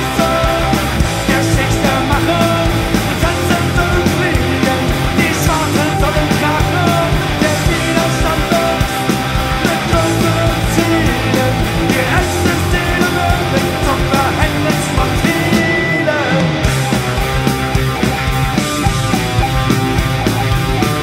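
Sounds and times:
person singing: 0.0s - 16.7s
bass guitar: 0.0s - 21.0s
drum kit: 0.0s - 21.0s.

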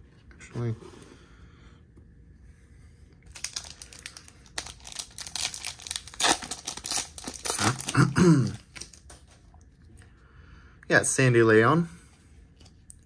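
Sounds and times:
foil wrapper tearing and crinkling: 3.3s - 9.2s.

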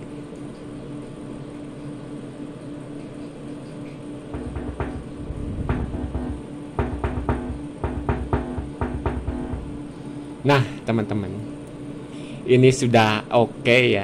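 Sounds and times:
cooling fan noise: 0.0s - 14.0s
mains hum: 0.0s - 14.0s
buzzing thumps from speaker: 4.3s - 10.0s.

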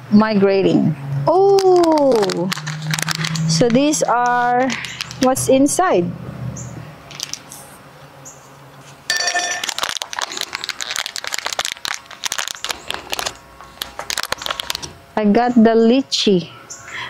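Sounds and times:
plastic wrappers crackling: 1.4s - 5.3s, 9.1s - 15.0s.

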